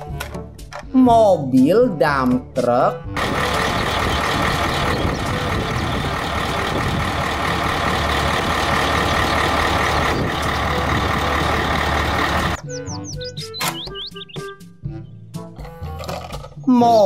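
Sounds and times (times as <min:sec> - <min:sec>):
diesel truck engine running: 0:03.1 - 0:14.6.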